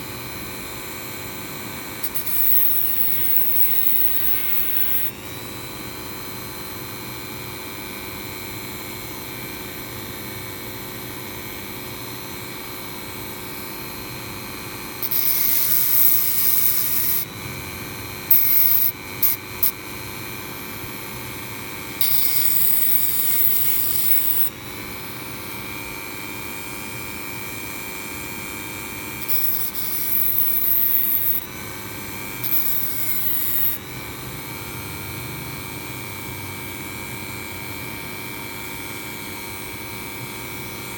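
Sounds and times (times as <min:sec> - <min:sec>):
disc grinding wire: 0:02.0 - 0:05.2, 0:15.0 - 0:17.3, 0:18.3 - 0:19.7, 0:22.0 - 0:24.5, 0:29.2 - 0:31.5, 0:32.4 - 0:33.8
rotary tool whining: 0:02.0 - 0:05.4, 0:15.0 - 0:17.3, 0:22.0 - 0:24.5, 0:29.2 - 0:31.5, 0:32.4 - 0:33.8.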